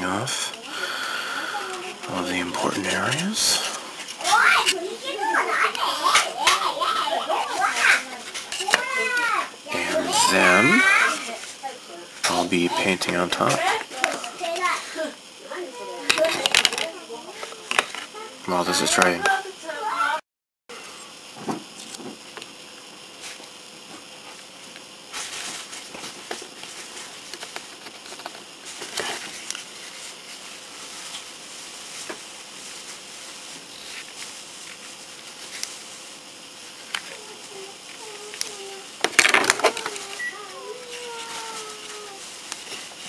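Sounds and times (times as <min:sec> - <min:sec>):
masking tape rustling: 0:36.8 - 0:43.0.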